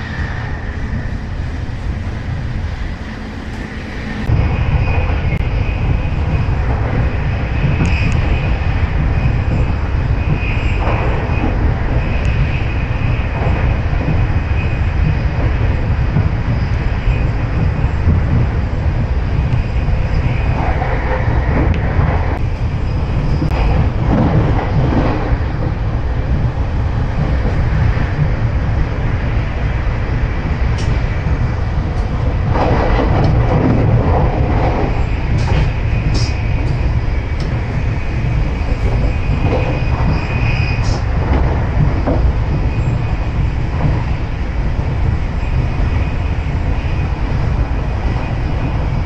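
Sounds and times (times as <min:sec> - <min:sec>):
faint high squeal: 0:00.0 - 0:06.4, 0:34.9 - 0:41.2
clicks of train wheels: 0:00.0 - 0:49.0
train wheels rumbling on rails: 0:00.0 - 0:49.0.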